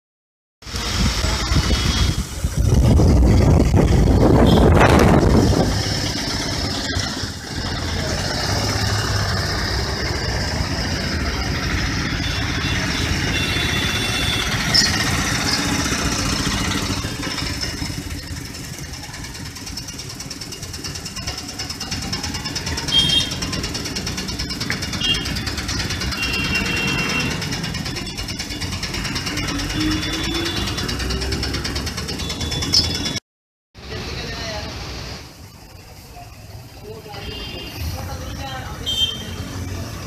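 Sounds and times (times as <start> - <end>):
engine running: 0.6 - 33.2.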